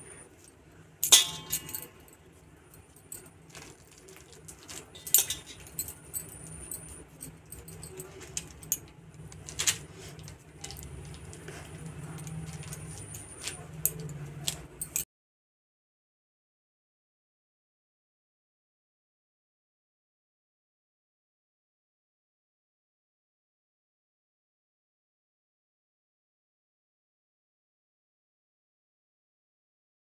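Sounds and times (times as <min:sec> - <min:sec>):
faint low hum: 0:00.0 - 0:15.0
plastic sheet crinkling: 0:03.4 - 0:05.6.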